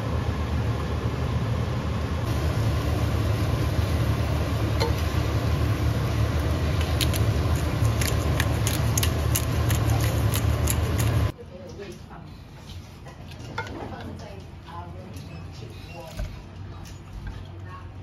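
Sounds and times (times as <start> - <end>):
low rumble and hiss: 0.0 - 11.6
spatula stirring mushrooms: 4.5 - 11.3
spatula clicks and scrapes: 6.8 - 11.3.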